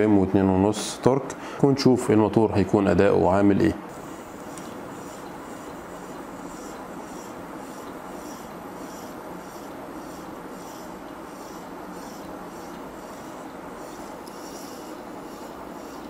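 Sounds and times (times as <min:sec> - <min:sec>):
dental motor hum: 0:03.9 - 0:16.0.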